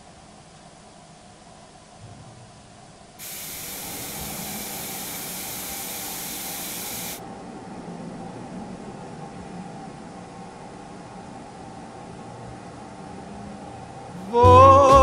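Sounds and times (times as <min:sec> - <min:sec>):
kettle hissing with steam: 0:03.2 - 0:07.2.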